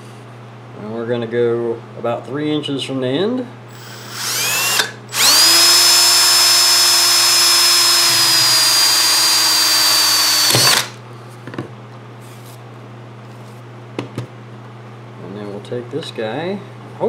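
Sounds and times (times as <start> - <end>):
electric drill whining: 3.7 - 11.0.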